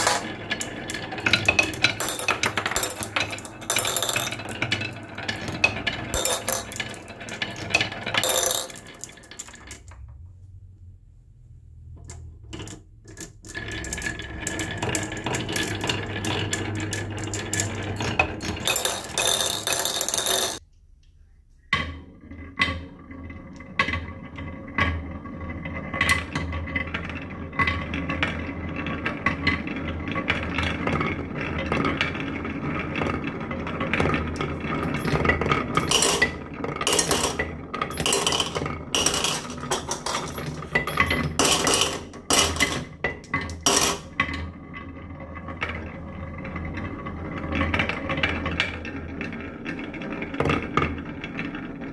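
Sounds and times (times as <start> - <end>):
marbles rolling on wooden tracks: 0.0 - 10.1, 12.1 - 20.6, 21.8 - 51.9.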